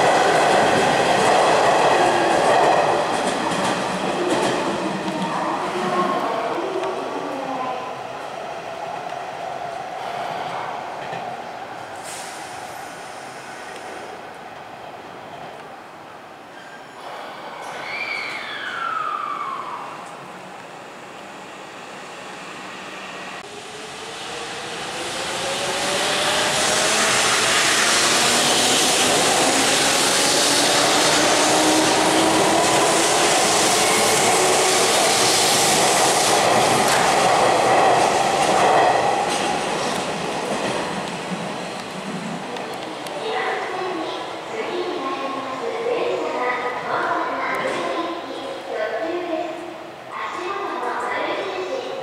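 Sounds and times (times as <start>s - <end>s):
train running noise on rails: 0.0s - 52.0s
train wheel squeal: 16.5s - 19.9s.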